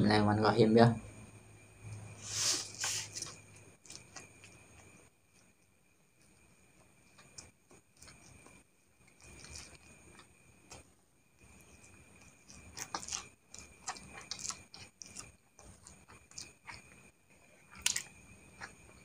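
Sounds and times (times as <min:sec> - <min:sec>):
person chewing and slurping noodles: 0:06.2 - 0:10.8, 0:11.4 - 0:19.0.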